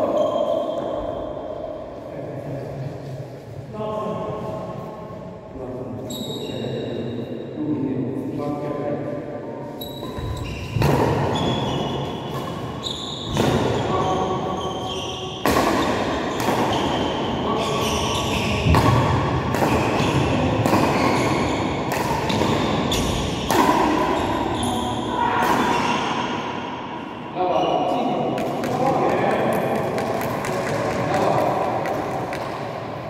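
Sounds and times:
shoe squeaks on court floor: 0:06.0 - 0:07.0, 0:09.8 - 0:15.5, 0:16.3 - 0:18.8, 0:24.1 - 0:25.1
rackets striking shuttlecock: 0:15.4 - 0:17.1, 0:18.6 - 0:24.2.

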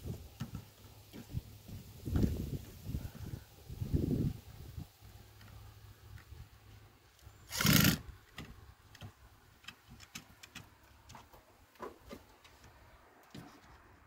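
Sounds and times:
cordless drill driving screw: 0:07.5 - 0:08.0
light clicks and taps: 0:08.3 - 0:13.8.

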